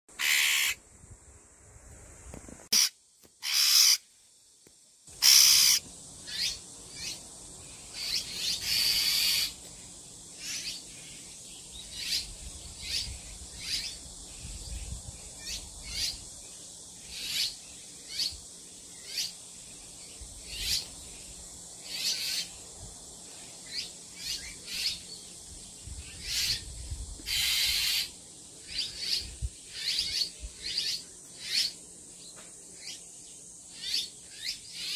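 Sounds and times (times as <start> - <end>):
bird giving harsh alarm calls: 0.1 - 0.8, 2.7 - 4.0, 5.2 - 7.2, 8.0 - 9.6.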